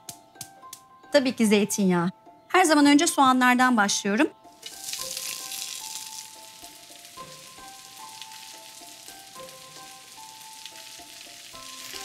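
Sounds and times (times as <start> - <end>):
background music melody: 0.0 - 12.0
onions sizzling in oil: 4.6 - 12.0.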